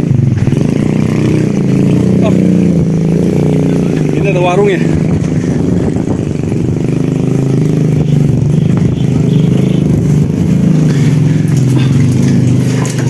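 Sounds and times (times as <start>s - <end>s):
small engine droning: 0.0s - 13.0s
faint clatter and scraping: 10.8s - 13.0s.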